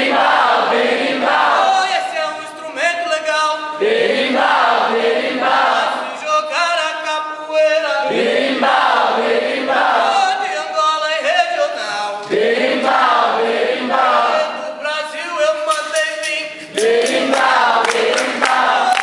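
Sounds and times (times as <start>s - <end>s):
group chorus singing: 0.0s - 1.9s, 3.7s - 6.2s, 8.0s - 10.4s, 12.1s - 14.8s, 16.6s - 19.0s.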